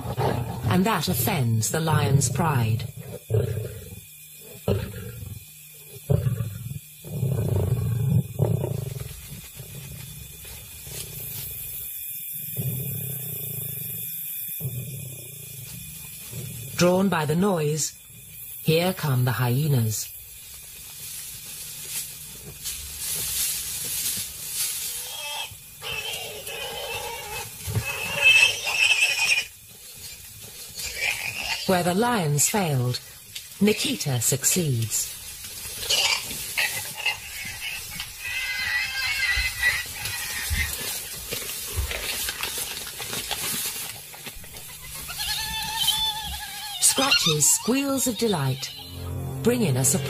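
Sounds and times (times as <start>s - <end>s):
hyenas hissing snarls: 0.0s - 0.8s, 2.0s - 16.8s, 24.6s - 31.7s
scrabbling in dusty ground: 35.0s - 49.4s
hyenas high squealing calls: 35.9s - 41.0s, 44.8s - 49.0s.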